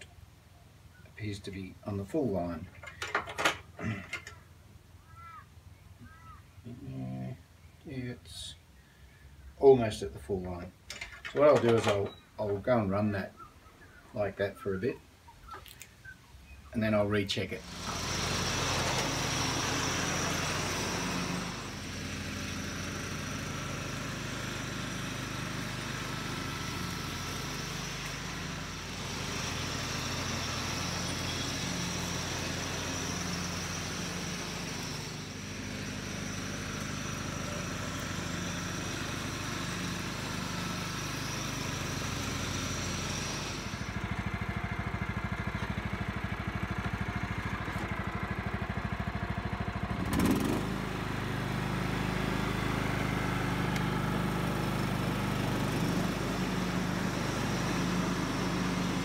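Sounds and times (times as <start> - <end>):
ride-on mower engine running: 2.0 - 5.4, 17.5 - 59.0.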